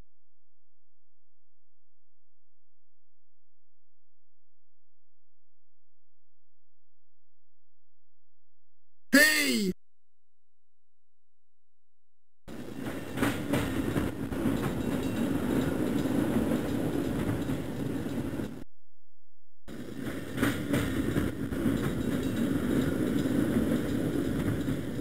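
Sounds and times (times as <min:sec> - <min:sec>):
subway train rumble: 0:12.5 - 0:18.6, 0:19.7 - 0:25.0.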